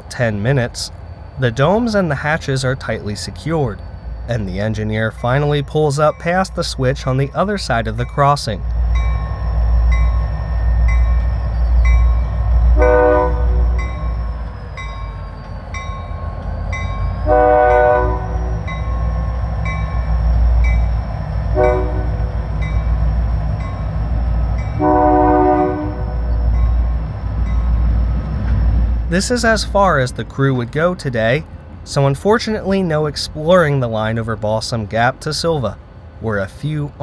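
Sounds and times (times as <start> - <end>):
diesel engines running: 0.0 - 37.0
locomotive horn blowing: 12.7 - 13.8, 17.2 - 18.7, 21.5 - 22.4, 24.8 - 26.3.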